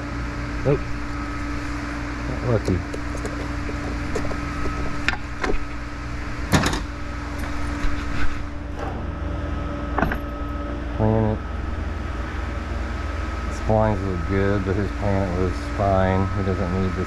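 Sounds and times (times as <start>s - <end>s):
background hum: 0.0s - 17.0s.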